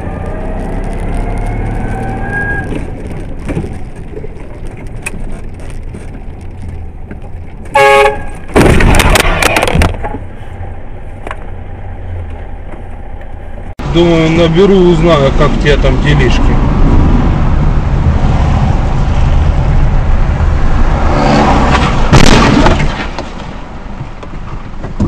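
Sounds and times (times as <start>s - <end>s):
vehicle collision crunching: 2.5s - 10.3s, 21.7s - 25.0s
short horn blast: 7.7s - 8.4s.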